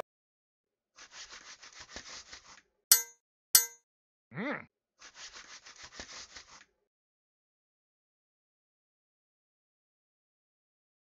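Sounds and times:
metallic clangs ringing: 2.9 - 3.8.

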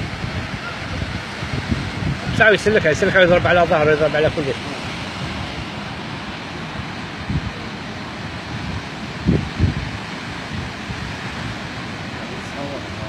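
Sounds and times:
sea surf against rocks: 0.0 - 13.0
wind on microphone: 0.0 - 13.0.

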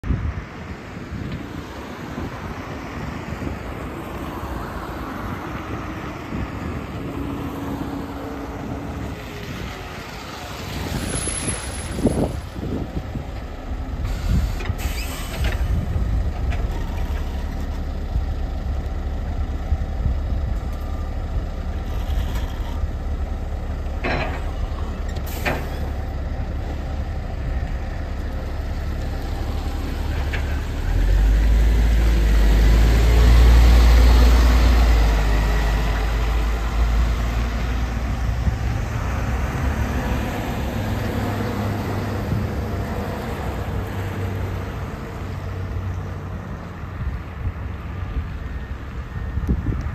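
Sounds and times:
bus engine idling: 3.0 - 49.4
sharp air hisses: 14.0 - 15.6.

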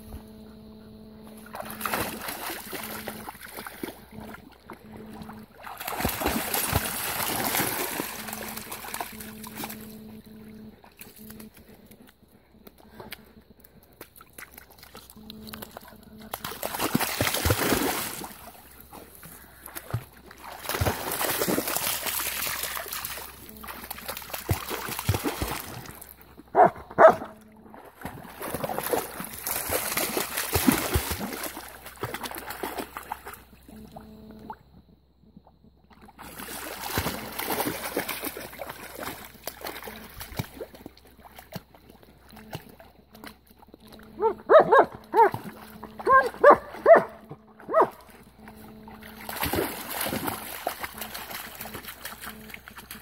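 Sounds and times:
dogs splashing through water: 1.3 - 12.1, 12.7 - 34.5, 35.9 - 53.0
dog barking: 26.5 - 27.4, 44.2 - 45.4, 46.0 - 48.0
dog yelping: 46.0 - 47.1.

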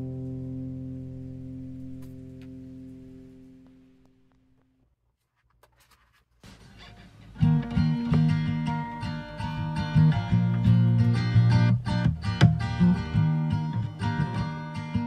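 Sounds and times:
guitar-led song: 0.0 - 4.1, 7.4 - 15.0.

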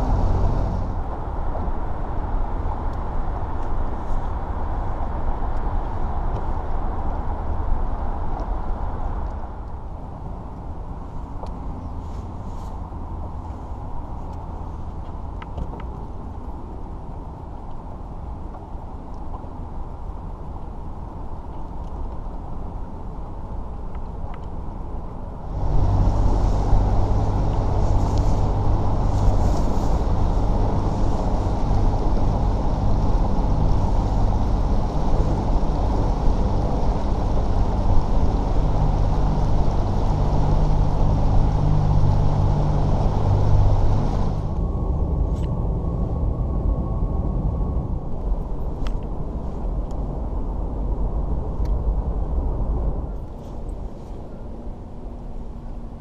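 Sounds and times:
rushing wind and water: 25.4 - 44.6.

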